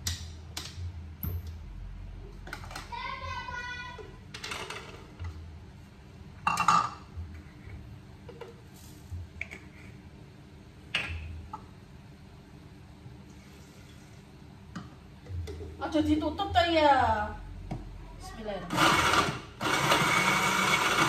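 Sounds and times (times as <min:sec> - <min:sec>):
kitchenware clinking and knocking: 0:06.4 - 0:07.0.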